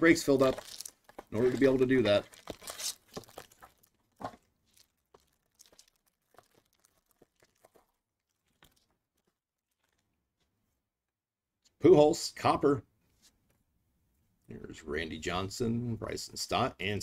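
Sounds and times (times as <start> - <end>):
foil wrapper tearing and crinkling: 0.0 - 10.0.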